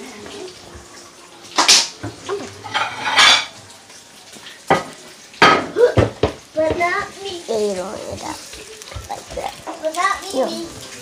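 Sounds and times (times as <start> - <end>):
dishes and cutlery clattering: 1.6 - 3.6, 4.6 - 7.0.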